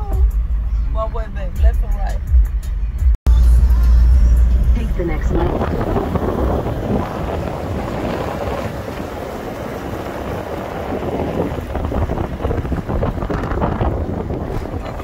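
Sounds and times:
vehicle rumbling on gravel: 4.1s - 15.0s
wind on microphone: 5.0s - 15.0s.

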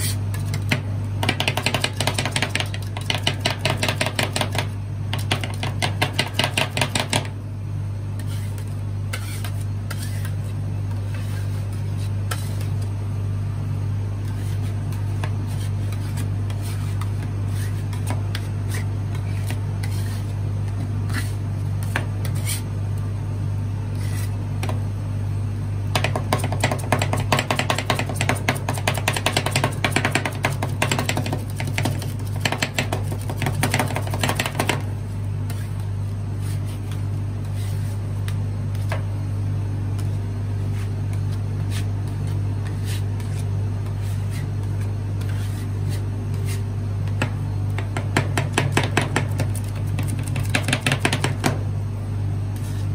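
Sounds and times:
rapid chopping strokes: 48.2s - 51.6s.

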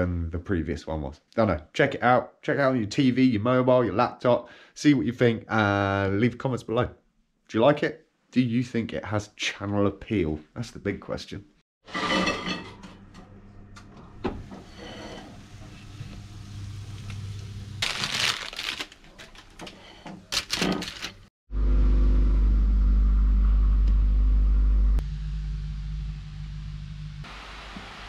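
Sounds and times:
loud low hum: 21.5s - 27.3s.

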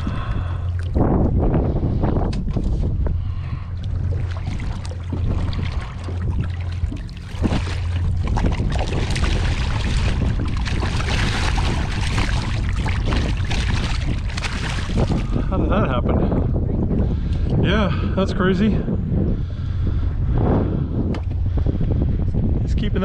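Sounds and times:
fish thrashing and water splashing: 0.0s - 1.0s, 3.2s - 15.6s
wind rumble on microphone: 0.0s - 23.0s.

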